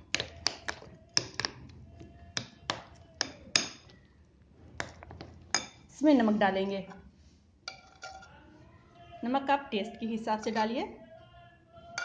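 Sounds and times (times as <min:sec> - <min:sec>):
spoon tapping a bowl: 0:00.0 - 0:01.6, 0:02.4 - 0:04.0.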